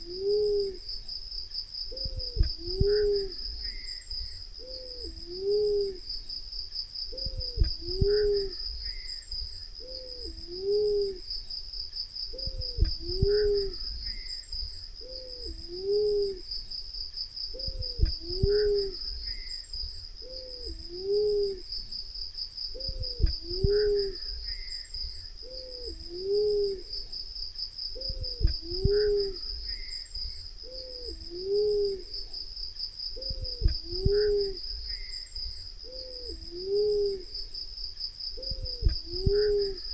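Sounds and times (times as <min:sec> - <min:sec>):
dove cooing: 0:00.0 - 0:00.9, 0:01.9 - 0:03.9, 0:04.6 - 0:06.1, 0:07.1 - 0:09.1, 0:09.8 - 0:11.3, 0:12.3 - 0:14.3, 0:15.0 - 0:16.5, 0:17.5 - 0:19.5, 0:20.2 - 0:21.7, 0:22.7 - 0:24.7, 0:25.4 - 0:27.1, 0:27.9 - 0:29.9, 0:30.6 - 0:32.4, 0:33.2 - 0:35.1, 0:35.8 - 0:37.4, 0:38.4 - 0:39.9
high-pitched insect trill: 0:00.0 - 0:39.9.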